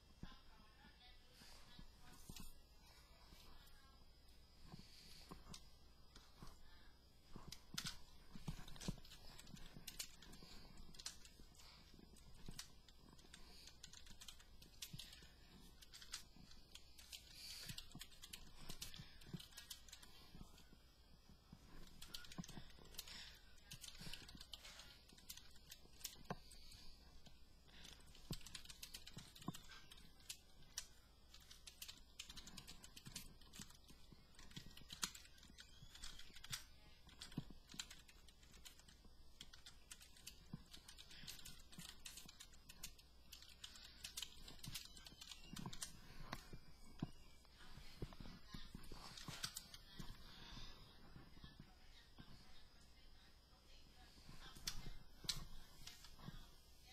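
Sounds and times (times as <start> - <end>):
computer keyboard typing: 7.3 - 20.8, 21.5 - 50.2.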